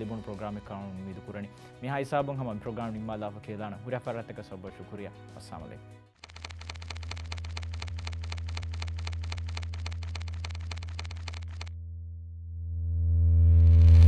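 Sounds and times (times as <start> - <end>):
fast ticking pulses: 6.2 - 11.7
low synth drone: 11.7 - 14.0.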